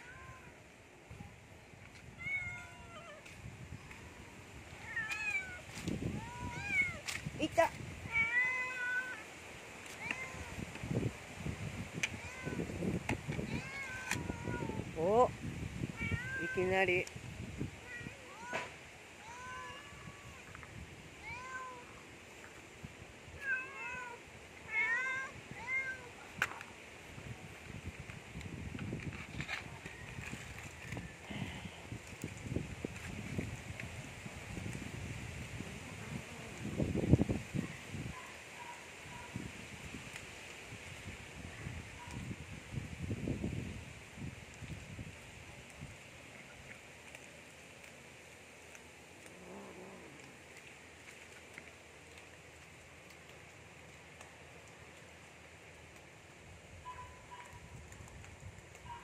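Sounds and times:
cats meowing: 0:02.2 - 0:03.3, 0:04.8 - 0:05.6, 0:08.0 - 0:09.2, 0:13.4 - 0:14.8, 0:15.9 - 0:16.6, 0:17.8 - 0:20.5, 0:23.4 - 0:26.2.

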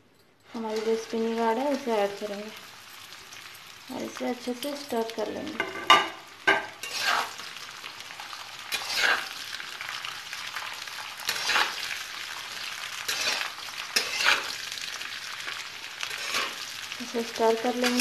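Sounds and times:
vegetables sizzling in hot oil: 0:00.5 - 0:18.0
spatula scraping metal pan: 0:06.8 - 0:07.4, 0:08.7 - 0:09.4, 0:11.3 - 0:11.8, 0:13.0 - 0:14.6, 0:16.1 - 0:16.6.

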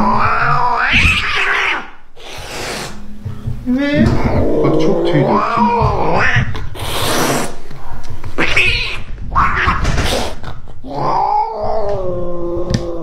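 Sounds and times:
cat yowling: 0:00.0 - 0:02.7, 0:03.7 - 0:07.2, 0:08.4 - 0:10.0, 0:10.8 - 0:13.0
cat hissing: 0:00.0 - 0:03.0, 0:03.7 - 0:07.6, 0:08.4 - 0:11.5.

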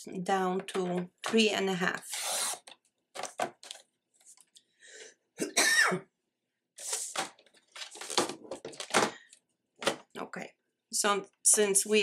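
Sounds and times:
person coughing: 0:05.4 - 0:06.1
cardstock rustling: 0:06.8 - 0:09.2.

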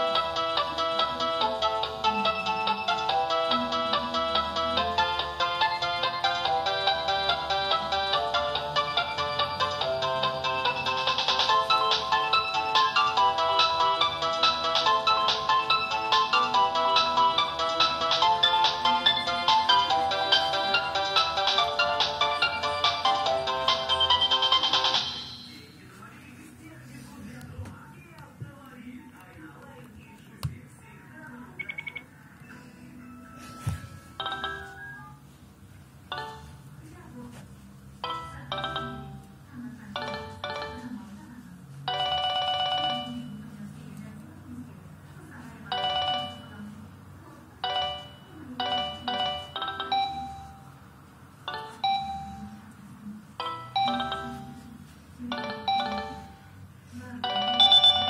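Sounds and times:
phone ringtone: 0:00.0 - 0:25.6, 0:31.6 - 0:35.4, 0:36.0 - 0:36.6, 0:38.0 - 0:39.3, 0:39.9 - 0:40.9, 0:41.8 - 0:43.4, 0:45.7 - 0:46.6, 0:47.6 - 0:50.8, 0:51.5 - 0:52.6, 0:53.4 - 0:56.6, 0:57.2 - 0:58.0
short high beeps: 0:31.6 - 0:32.1, 0:57.6 - 0:58.0.

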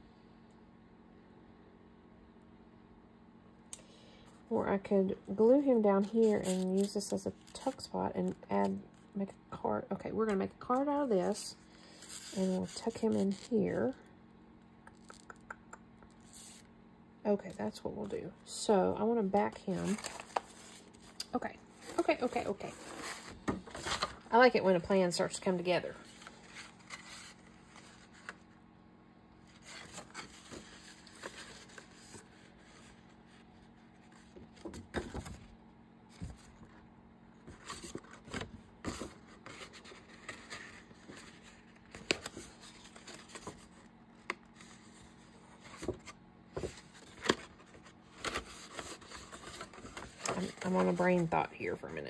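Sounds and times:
faint steady hum: 0:00.0 - 0:52.0
paper and card handling: 0:19.5 - 0:24.2, 0:26.0 - 0:28.5, 0:29.4 - 0:33.3, 0:37.5 - 0:51.4.

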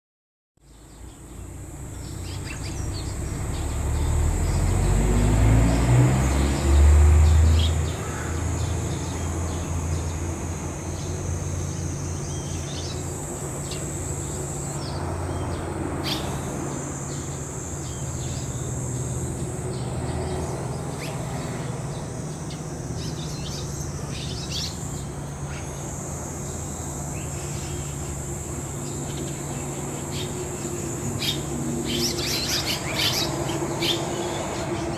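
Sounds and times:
high insect drone: 0:00.6 - 0:34.9
swallows chirping: 0:00.7 - 0:28.2, 0:28.8 - 0:34.9
low mechanical rumble: 0:00.7 - 0:34.9.

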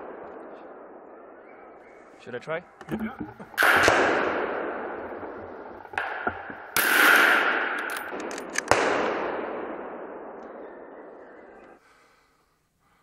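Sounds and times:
rifle shots echoing: 0:03.6 - 0:10.9.

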